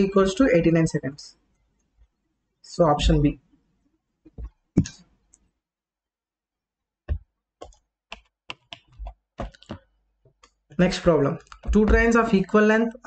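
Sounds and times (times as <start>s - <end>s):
keyboard and mouse clicking: 7.6s - 10.6s, 11.4s - 12.3s.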